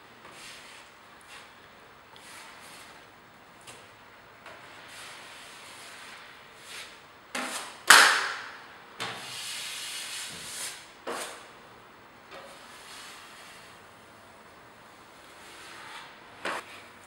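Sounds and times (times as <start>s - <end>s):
knife slap: 7.4s - 8.5s.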